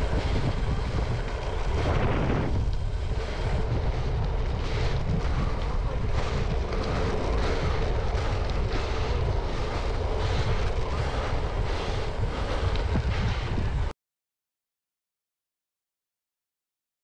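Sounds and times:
bicycle tyres on gravel: 0.0s - 13.9s
wind rush on microphone: 0.0s - 13.9s.

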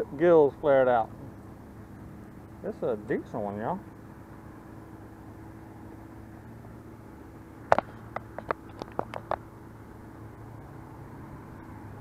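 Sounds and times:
steady low hum: 0.0s - 12.0s
sharp clicks and taps: 7.7s - 9.4s.

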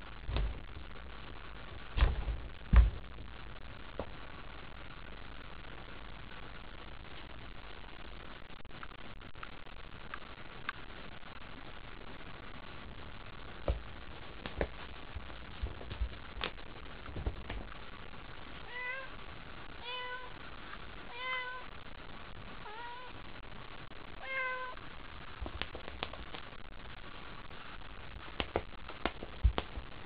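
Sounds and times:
cat meowing: 18.6s - 19.1s, 19.8s - 20.4s, 21.1s - 21.7s, 22.6s - 23.2s, 24.2s - 24.8s.

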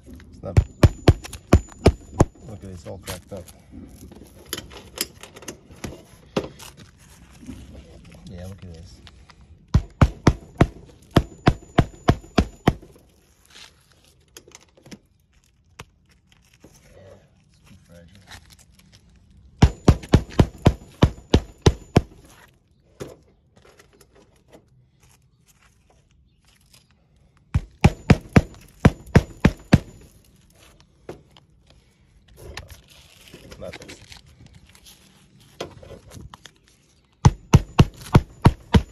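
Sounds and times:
hammer nailing shingles: 0.6s - 2.4s, 9.7s - 13.0s, 19.6s - 22.3s, 27.6s - 30.1s, 37.2s - 38.9s.

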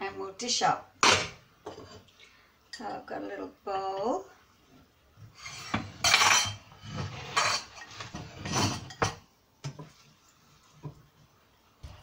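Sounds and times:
metal spoon scraping a saucepan: 5.3s - 9.2s.

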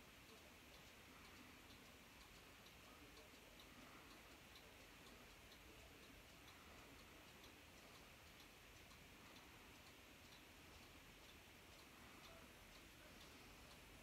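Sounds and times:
clock ticking: 0.0s - 14.0s.

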